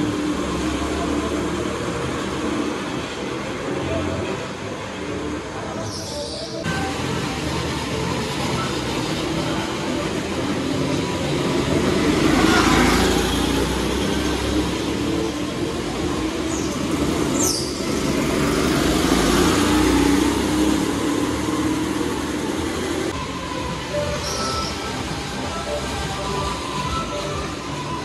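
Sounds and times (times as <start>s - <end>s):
vehicle engines humming: 0.0s - 28.0s
brief high squeal: 24.0s - 28.0s.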